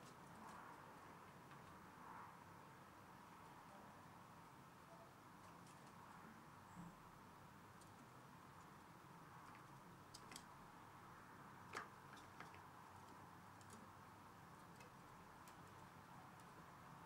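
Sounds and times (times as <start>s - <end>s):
squirrel gnawing food: 7.7s - 17.0s.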